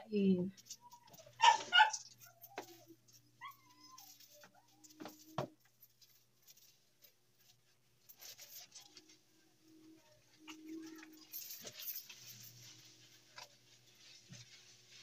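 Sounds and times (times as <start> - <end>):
dog whining: 0.7 - 5.1.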